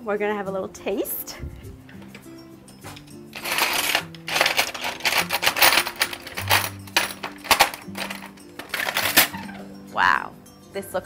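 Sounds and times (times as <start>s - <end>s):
soft background music: 0.0s - 11.0s
utensils clattering on cutting board: 1.8s - 9.6s.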